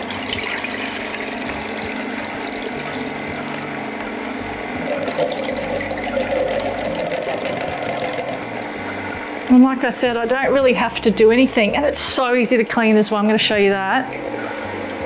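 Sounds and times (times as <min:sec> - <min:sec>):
juice streaming into jug: 0:00.0 - 0:09.5
juicer motor hum: 0:00.0 - 0:15.0.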